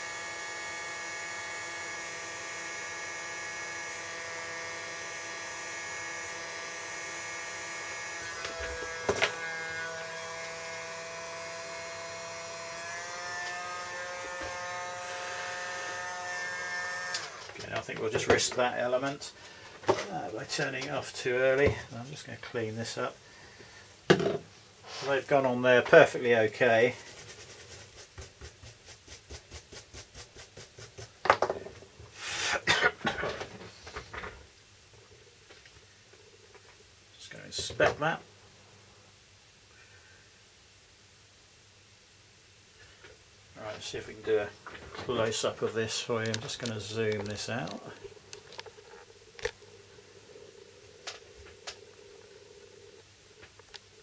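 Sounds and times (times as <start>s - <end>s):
blower fan motor whine: 0.0s - 17.7s
brush scrubbing circuit board: 26.1s - 31.2s
air hissing from nozzle: 32.1s - 32.6s
person coughing: 32.5s - 33.4s.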